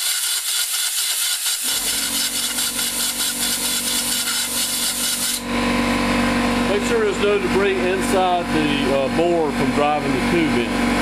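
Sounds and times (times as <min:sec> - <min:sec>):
hand tool scraping in tube: 0:00.0 - 0:05.4.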